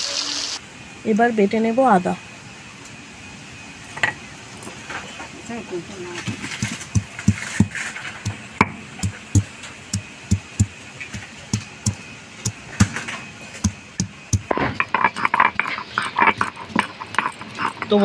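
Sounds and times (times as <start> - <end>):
stone pestle pounding ginger: 6.2 - 13.0, 13.6 - 17.9.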